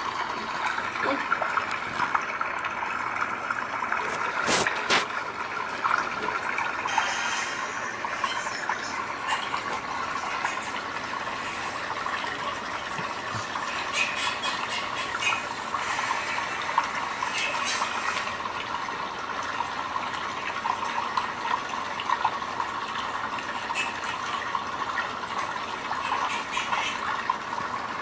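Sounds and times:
water trickling: 0:00.0 - 0:28.0.

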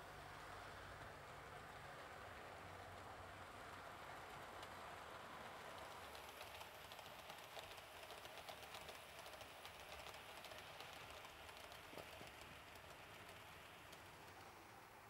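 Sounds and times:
model train rolling hiss: 0:00.0 - 0:15.0
wheels clicking over rail joints: 0:04.4 - 0:15.0.

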